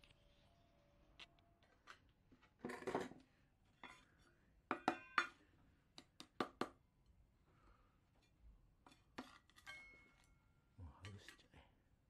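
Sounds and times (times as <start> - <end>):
metal clinking on metal dish: 9.5 - 10.3.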